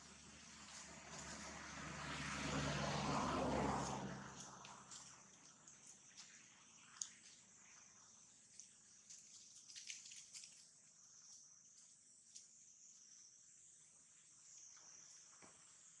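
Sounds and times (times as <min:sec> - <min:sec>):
high-pitched insect hum: 0:03.4 - 0:16.0
faint rustling clicks: 0:08.5 - 0:10.7.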